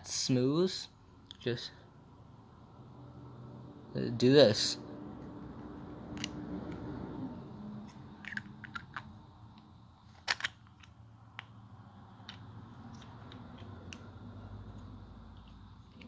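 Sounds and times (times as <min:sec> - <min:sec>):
plastic parts clicking and tapping: 0:08.2 - 0:11.6.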